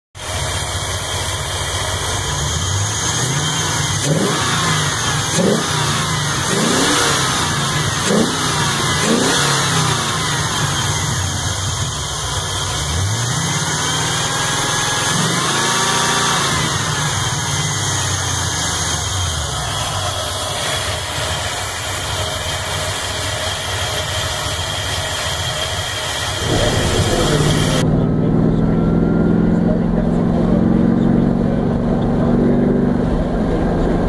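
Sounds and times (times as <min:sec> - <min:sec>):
car engine idling and revving: 0:00.2 - 0:34.0.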